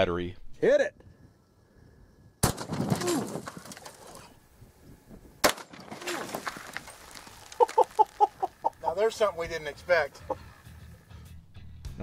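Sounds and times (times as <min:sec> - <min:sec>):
shotgun blast with echo: 0:02.4 - 0:03.5.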